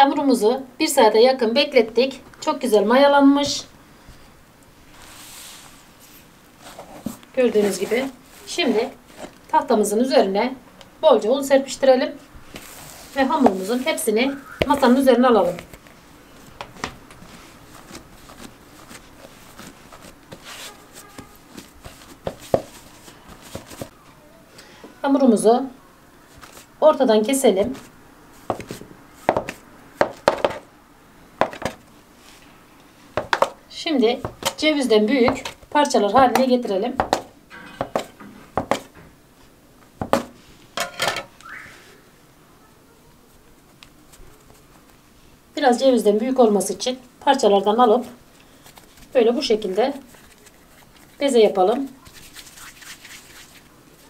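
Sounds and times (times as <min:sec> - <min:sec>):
hands kneading dough: 0:04.8 - 0:09.8, 0:12.5 - 0:24.0, 0:26.2 - 0:30.7, 0:31.4 - 0:40.7, 0:43.1 - 0:54.0.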